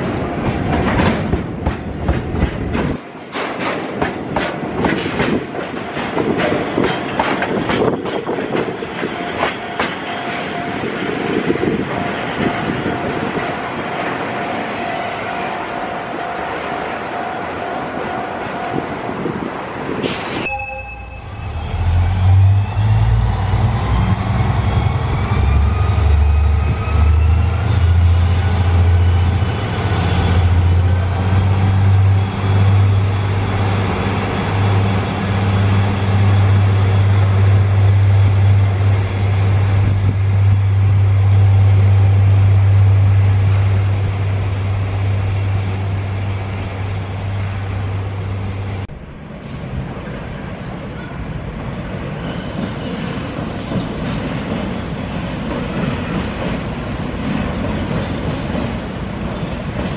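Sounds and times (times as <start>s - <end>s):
diesel locomotive engine drone: 0.0s - 59.9s.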